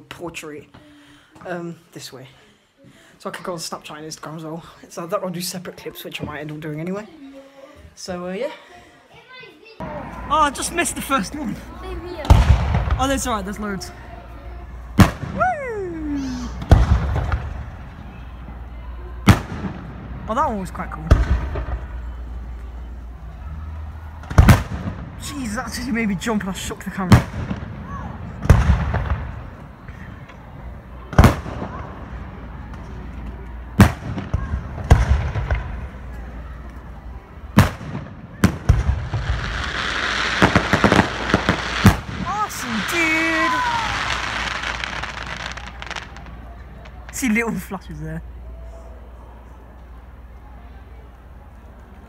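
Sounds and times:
firework crackling pops: 12.2s - 13.3s, 16.5s - 17.8s, 24.2s - 25.1s, 28.4s - 29.6s, 37.5s - 47.3s
firework shells bursting: 37.6s - 47.1s.

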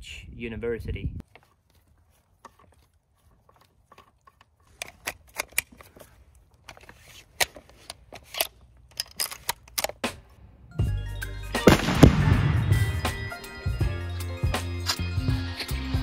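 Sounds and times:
rifle bolt metal clicks: 3.5s - 6.0s, 6.6s - 10.3s.

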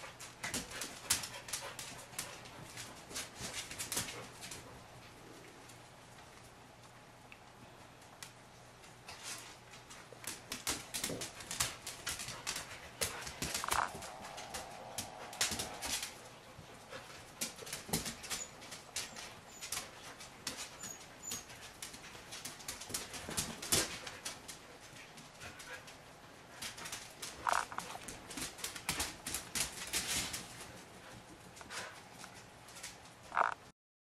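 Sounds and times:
dog claws clicking on hard floor: 0.1s - 4.7s, 8.8s - 16.1s, 16.9s - 25.9s, 26.5s - 33.1s
puppy whining: 20.6s - 21.6s.

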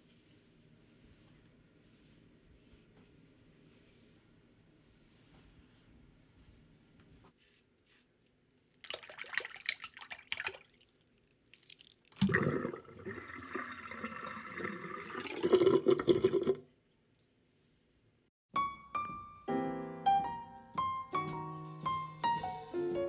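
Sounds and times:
toilet flushing: 12.2s - 16.6s.

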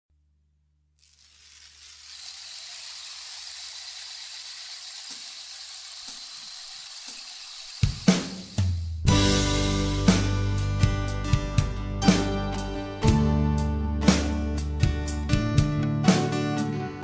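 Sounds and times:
music with deep bass: 9.1s - 16.9s.

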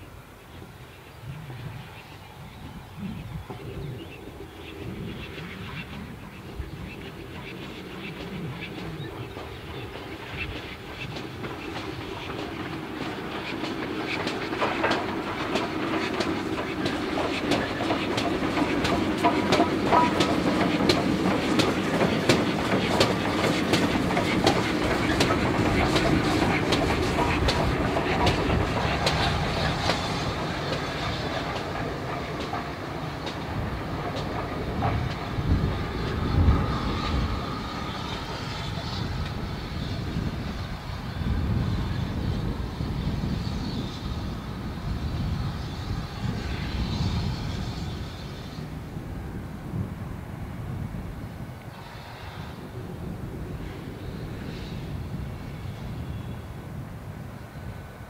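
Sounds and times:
steam train rolling past: 0.0s - 58.0s
train wheels clicking over rail joints: 7.7s - 40.9s.

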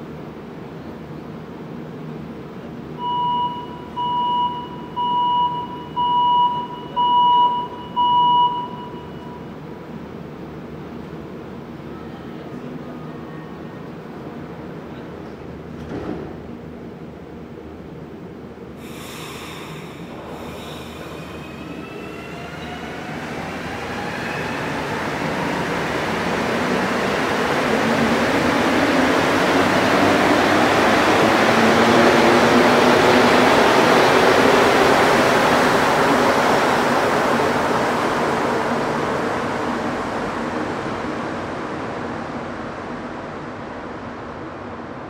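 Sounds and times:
train rushing rumble: 14.1s - 45.0s.

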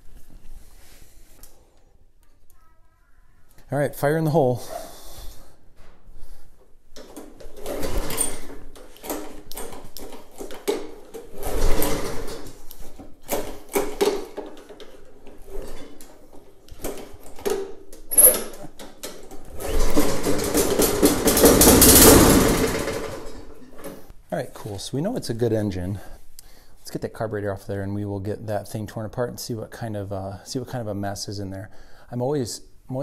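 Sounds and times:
lawn mower engine starting: 7.0s - 16.0s, 18.1s - 24.1s.

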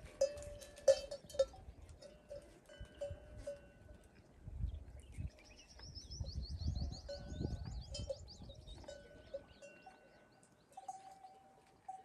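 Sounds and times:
camel bells clinking: 0.0s - 4.1s, 7.0s - 12.0s.

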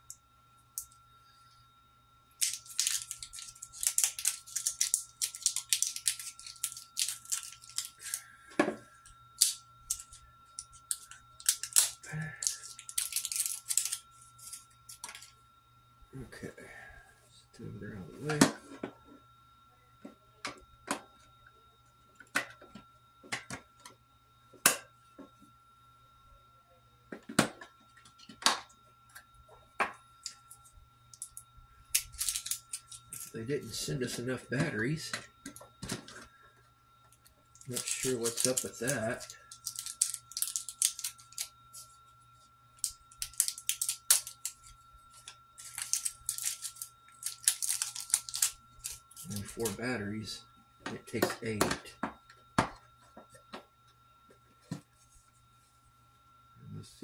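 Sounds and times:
faint steady hum: 0.0s - 57.0s
batteries clicking and rattling: 2.4s - 8.2s, 9.4s - 15.3s, 31.1s - 31.4s, 32.0s - 33.4s, 37.5s - 41.9s, 42.8s - 49.8s.

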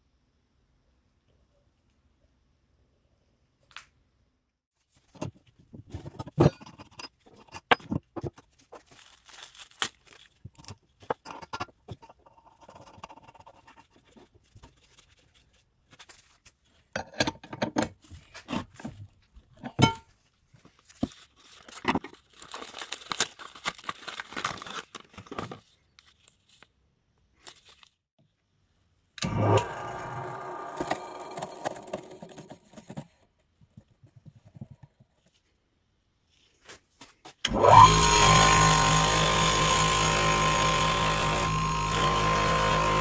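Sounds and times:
rustling and scraping: 4.8s - 16.9s, 31.3s - 35.6s, 36.2s - 37.4s
clicks and metal knocks: 10.5s - 14.0s.

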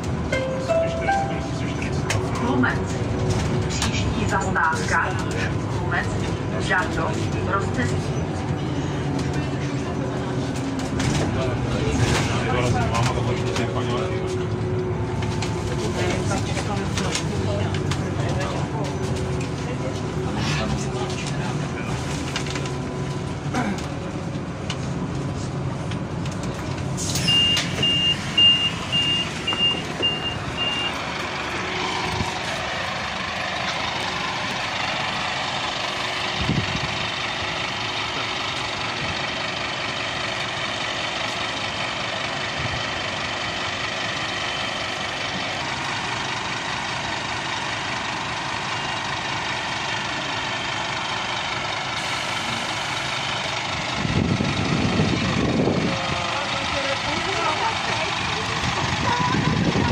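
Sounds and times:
bus engine idling: 0.0s - 59.9s
door warning beeps: 27.3s - 31.0s.

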